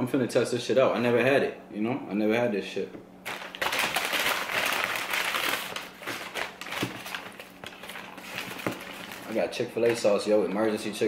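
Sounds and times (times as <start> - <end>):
paper bag crinkling: 3.2 - 10.0.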